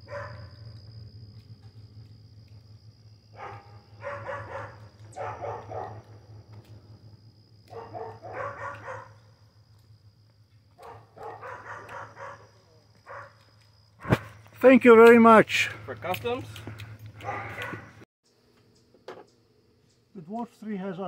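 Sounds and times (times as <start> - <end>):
dog barking: 0.0 - 0.5, 3.3 - 6.1, 7.7 - 9.2, 10.8 - 13.4, 14.0 - 14.4, 17.2 - 18.0.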